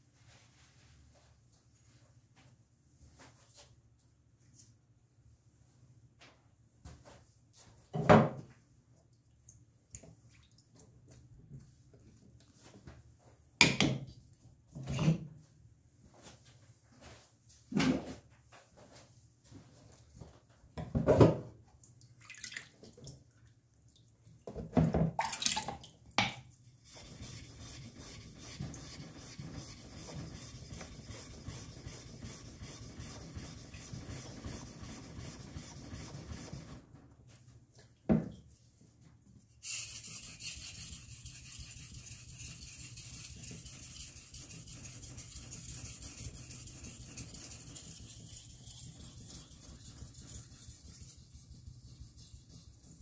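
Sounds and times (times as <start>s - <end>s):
knife rasping on whetstone: 26.9s - 36.6s, 39.6s - 53.0s.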